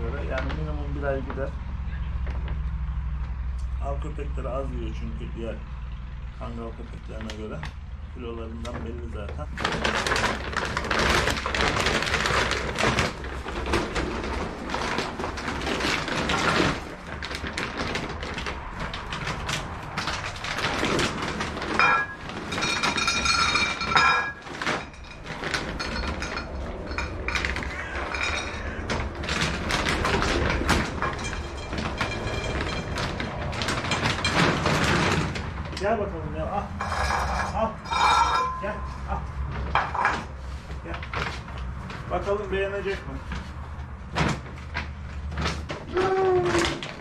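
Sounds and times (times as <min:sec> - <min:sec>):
dry kibble rattling: 0:09.6 - 0:35.8.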